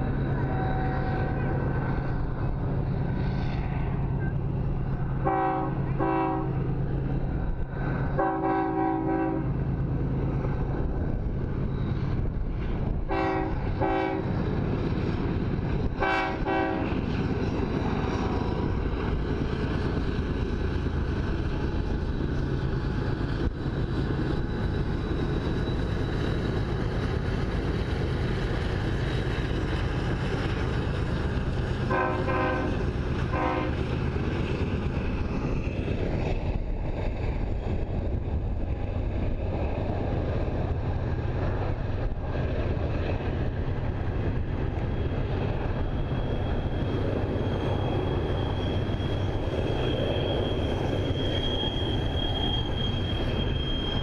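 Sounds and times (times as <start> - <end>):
locomotive engine drone: 0.0 - 54.0
locomotive air horn blasts: 5.2 - 6.6, 8.2 - 9.5, 13.1 - 14.2, 16.0 - 16.9, 31.9 - 33.8.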